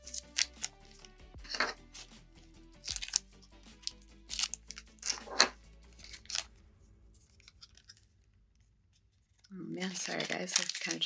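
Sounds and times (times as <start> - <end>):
plastic packaging crinkling and tearing: 0.0 - 2.1, 2.8 - 6.5, 9.4 - 11.0
soft background music: 0.0 - 8.1, 9.5 - 11.0.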